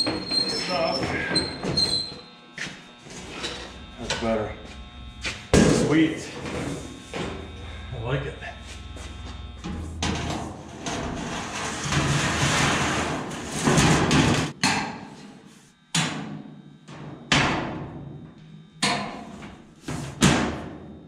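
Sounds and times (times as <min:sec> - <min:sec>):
steel sheet wobbling: 0:05.6 - 0:14.5.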